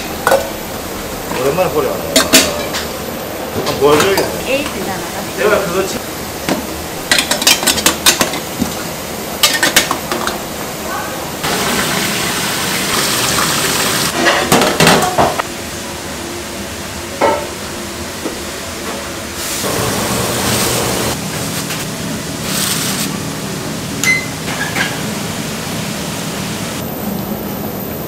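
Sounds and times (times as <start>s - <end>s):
tap water gushing into pot: 11.4s - 14.2s.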